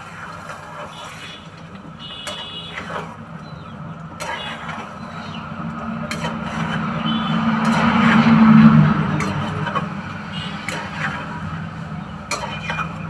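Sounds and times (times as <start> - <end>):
spatula scraping curry in wok: 6.1 - 8.4, 9.2 - 11.4.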